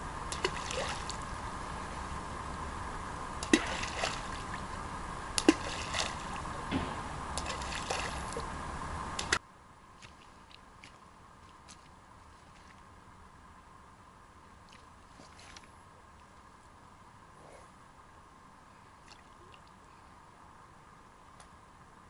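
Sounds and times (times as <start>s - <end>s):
water sloshing: 0.0s - 9.4s, 10.0s - 12.9s
water plops and splashes: 0.3s - 1.3s, 3.4s - 4.7s, 5.3s - 8.6s, 9.2s - 9.4s.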